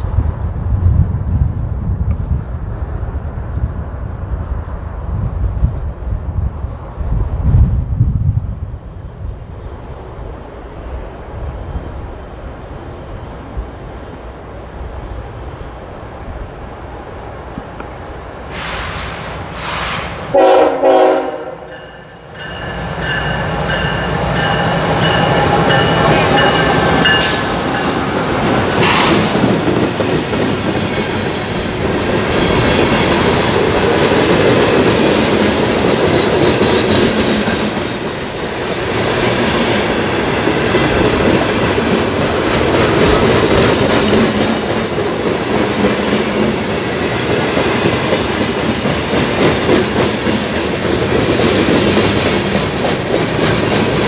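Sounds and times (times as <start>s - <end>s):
freight train passing: 0.0s - 54.0s
train wheels clattering over rails: 22.4s - 54.0s.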